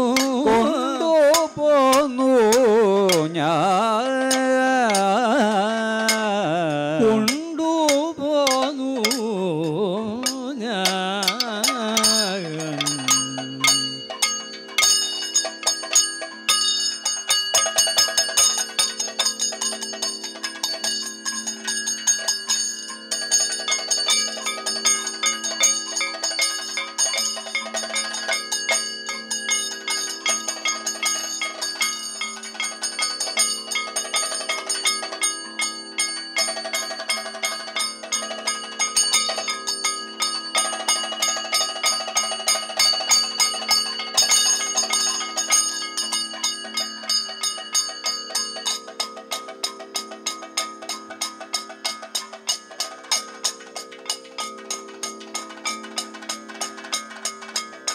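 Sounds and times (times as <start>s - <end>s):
person singing verses: 0.0s - 14.1s
ringing metal cymbals and gong: 0.0s - 57.9s.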